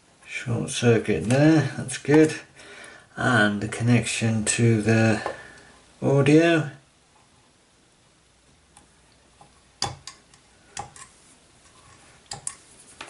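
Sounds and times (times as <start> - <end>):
metal probes clicking and tapping: 8.8 - 11.1, 12.3 - 12.6.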